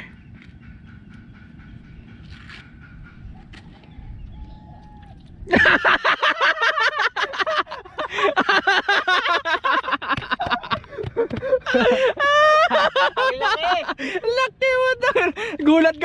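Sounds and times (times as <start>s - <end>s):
people laughing: 5.5s - 15.9s.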